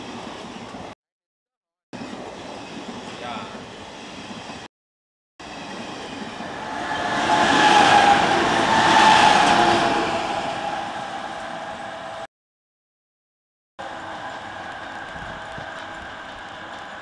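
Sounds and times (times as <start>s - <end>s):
locomotive running noise: 5.4s - 12.3s, 13.8s - 17.0s
locomotive blowers howling: 6.4s - 12.3s.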